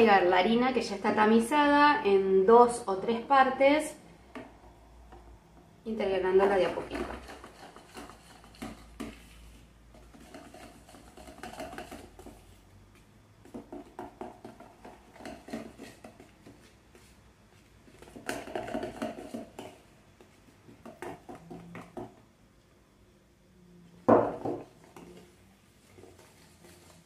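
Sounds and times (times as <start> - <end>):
whisk scraping plastic bowl: 6.5 - 12.6, 13.6 - 17.1, 17.9 - 19.8, 24.9 - 27.0.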